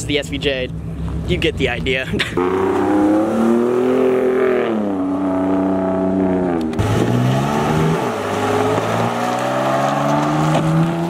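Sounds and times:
sports car engine accelerating: 0:02.2 - 0:11.0
truck engine passing: 0:02.2 - 0:11.0.

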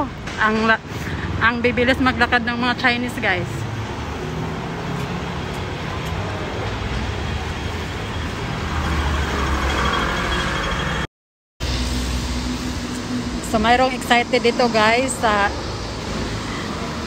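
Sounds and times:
passing cars and motor scooters: 0:00.1 - 0:11.0, 0:12.3 - 0:17.0.

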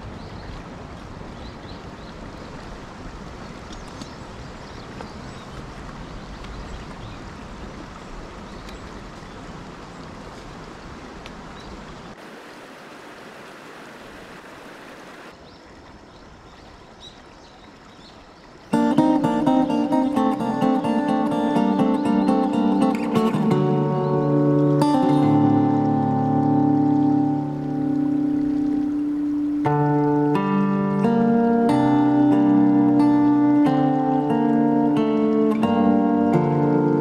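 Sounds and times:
stream rushing over rocks: 0:00.0 - 0:37.0
faint light ticks: 0:03.7 - 0:04.2, 0:04.9 - 0:07.1, 0:08.5 - 0:09.3, 0:11.2 - 0:11.4.

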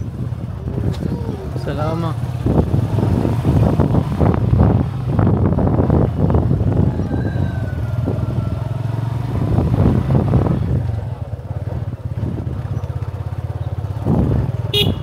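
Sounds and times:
small motorcycle engine running: 0:07.8 - 0:15.0.

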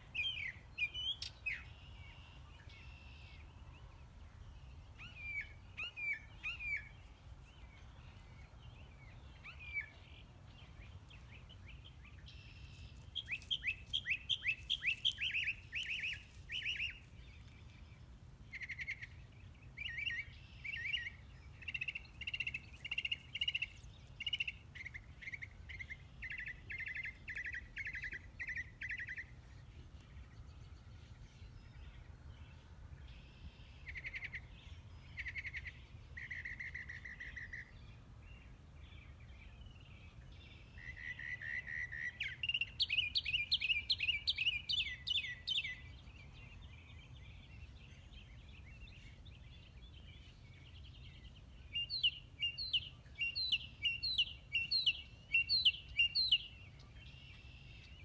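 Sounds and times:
songbirds chirping: 0:00.0 - 0:58.0.

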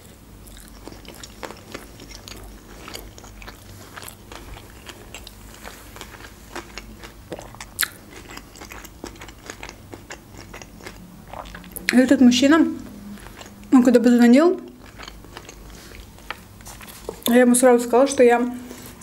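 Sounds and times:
chewing crunchy food: 0:00.0 - 0:12.1, 0:12.8 - 0:17.4
wet mouth clicks: 0:07.3 - 0:12.0.

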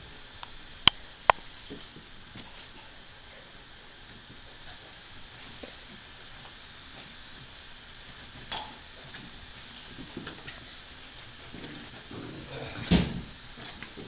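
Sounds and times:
steady high hiss: 0:00.0 - 0:14.0.

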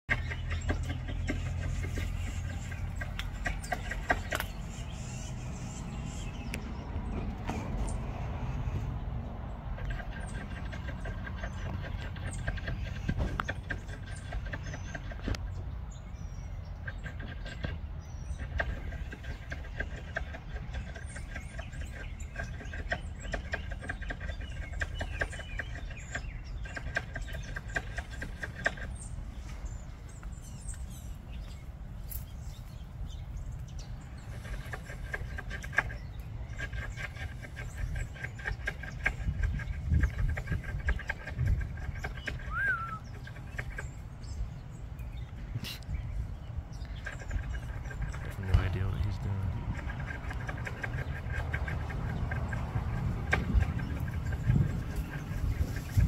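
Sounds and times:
squirrel clucking calls: 0:00.1 - 0:56.0
steady low rumble: 0:25.6 - 0:56.0.

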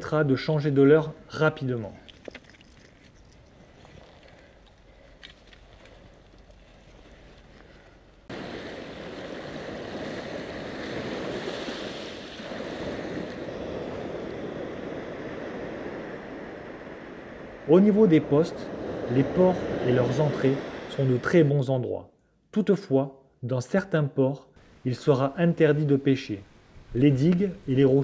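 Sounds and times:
wind: 0:00.0 - 0:28.0
handling noise with small clicks: 0:02.0 - 0:07.7
sea surf breaking on shore: 0:08.3 - 0:21.7.

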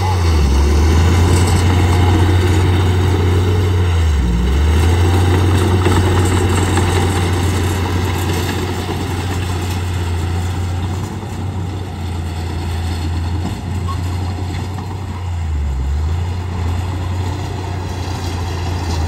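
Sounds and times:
bulldozer diesel engine running: 0:00.0 - 0:19.0.

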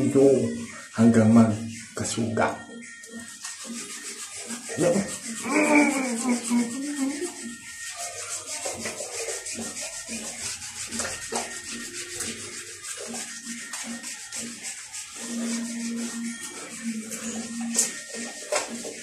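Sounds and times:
stone rasping on wet skin: 0:03.2 - 0:16.8.

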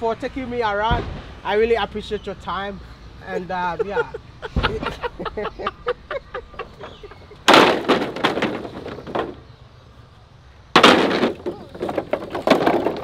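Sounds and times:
bamboo poles clattering: 0:06.6 - 0:09.5, 0:10.7 - 0:13.0.

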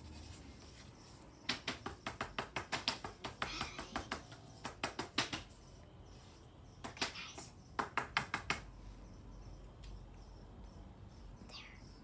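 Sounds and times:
colouring tool tapping on paper: 0:01.5 - 0:05.6, 0:07.8 - 0:08.7.

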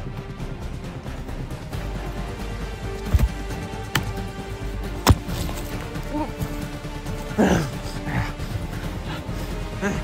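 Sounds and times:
background music: 0:00.0 - 0:10.0
hatchet striking tree trunk: 0:03.0 - 0:04.2, 0:04.9 - 0:05.8.

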